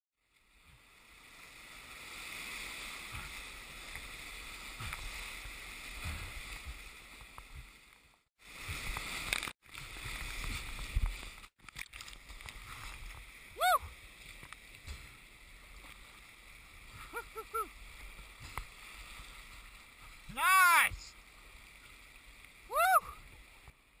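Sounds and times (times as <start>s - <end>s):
whitewater rushing: 20.0s - 21.2s.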